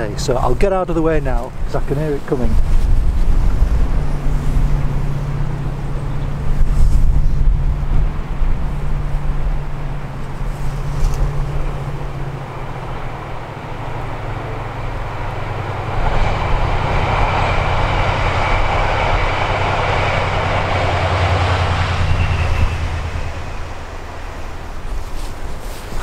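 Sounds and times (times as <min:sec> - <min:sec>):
diesel locomotive rumble: 0:00.0 - 0:26.0
faint high whine: 0:00.0 - 0:26.0
train wheel noise: 0:00.0 - 0:26.0.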